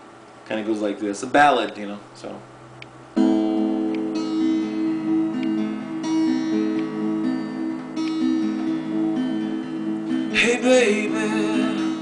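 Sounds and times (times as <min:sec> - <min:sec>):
acoustic guitar chords: 0:03.1 - 0:12.0.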